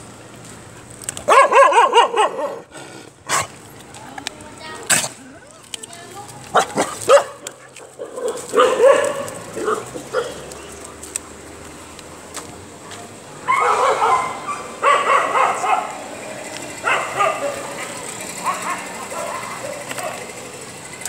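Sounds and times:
dogs barking: 0:01.2 - 0:03.6, 0:06.5 - 0:10.7, 0:13.4 - 0:20.7.

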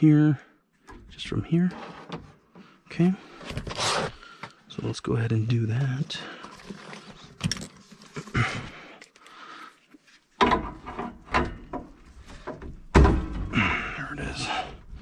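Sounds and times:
knocks and clunks on sheet metal: 0:10.4 - 0:13.6.

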